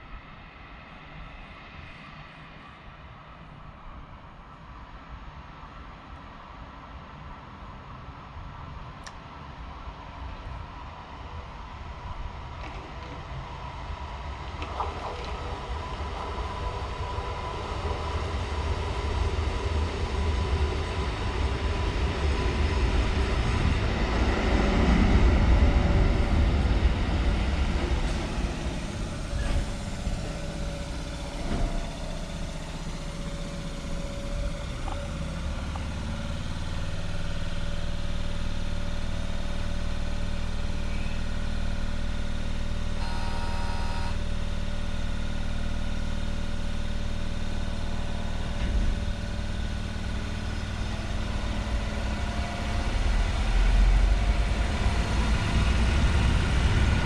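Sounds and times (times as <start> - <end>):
electric train rumbling: 0.0 - 57.0
train equipment hum: 0.0 - 57.0
brief tone: 28.8 - 55.2.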